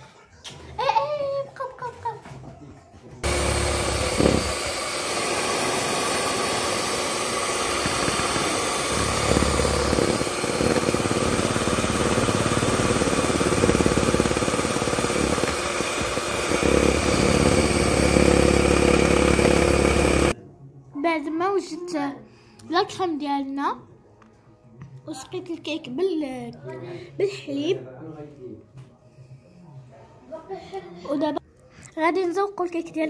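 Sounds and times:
electric mixer whipping cream: 3.2 - 20.4.

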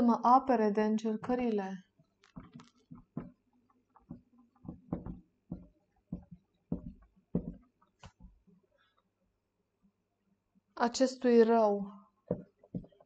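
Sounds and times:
marker writing on whiteboard: 2.4 - 3.4, 4.0 - 8.3, 12.3 - 13.0.

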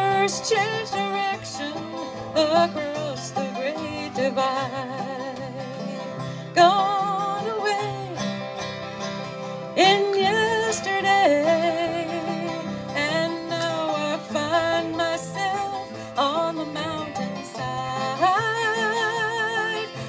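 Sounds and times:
acoustic string band playing: 0.0 - 20.0
woman singing long notes: 9.8 - 20.0.

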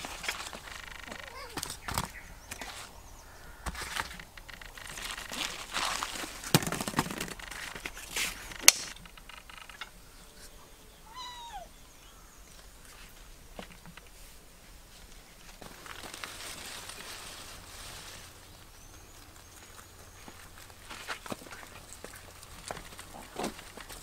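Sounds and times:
rustling and handling noise: 0.0 - 10.6, 12.5 - 24.0.

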